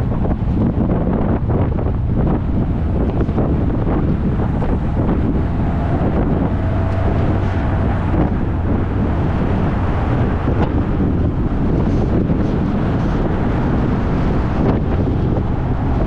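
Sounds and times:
road and vehicle noise: 0.0s - 16.0s
wind buffeting microphone: 0.0s - 16.0s.

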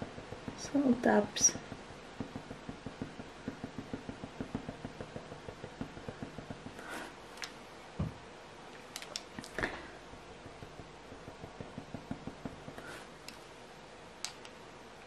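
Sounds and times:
eraser tapping on paper: 0.0s - 7.5s, 9.5s - 13.4s.

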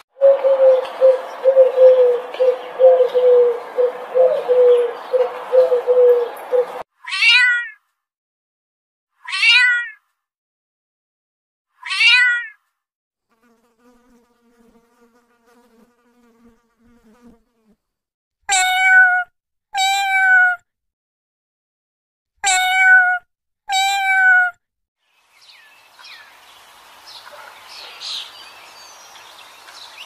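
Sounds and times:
cat meowing: 7.0s - 7.8s, 9.2s - 10.0s, 11.8s - 12.6s, 18.5s - 20.6s, 22.4s - 24.6s
insect wing buzz: 13.3s - 17.8s.

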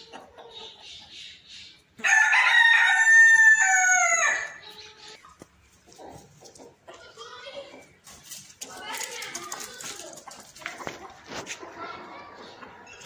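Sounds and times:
rooster crowing: 2.0s - 4.6s.

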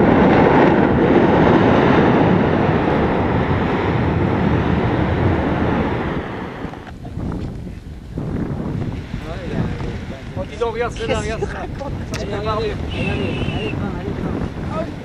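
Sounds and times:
volcanic ash eruption rushing: 0.0s - 15.0s.

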